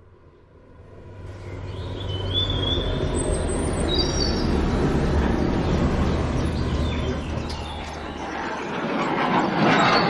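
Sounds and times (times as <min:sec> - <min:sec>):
truck engine rumbling: 0:00.6 - 0:09.4
bird chirps: 0:01.4 - 0:04.8, 0:05.6 - 0:08.5.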